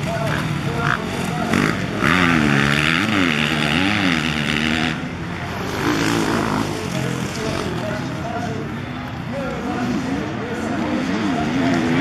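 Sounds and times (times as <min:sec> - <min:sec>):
fainter bike revving: 0:00.0 - 0:08.2
motocross bike engine revving: 0:00.0 - 0:08.2, 0:09.7 - 0:12.0.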